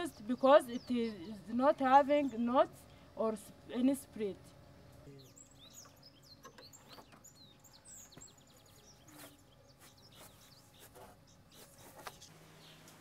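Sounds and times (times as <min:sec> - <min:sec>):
faint bird chirps: 0:05.0 - 0:12.9.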